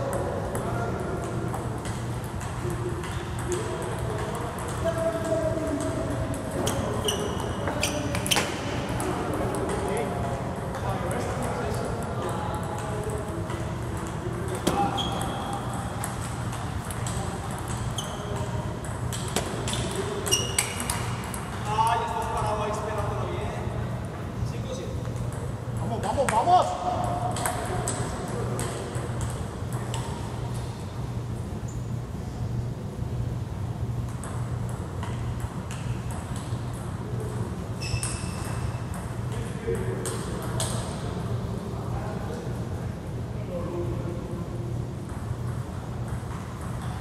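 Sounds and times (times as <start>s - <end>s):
low hum in hall: 0.0s - 47.0s
table tennis balls clicking: 0.1s - 9.9s, 12.2s - 22.5s.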